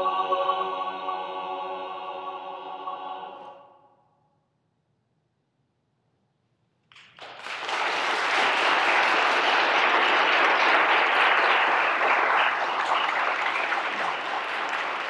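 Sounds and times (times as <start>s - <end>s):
audience applause: 7.0s - 15.0s.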